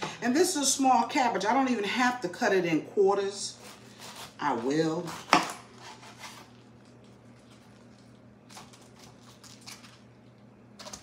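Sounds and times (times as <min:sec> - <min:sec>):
low steady hum: 0:00.0 - 0:11.0
knife cutting cabbage: 0:03.5 - 0:06.7.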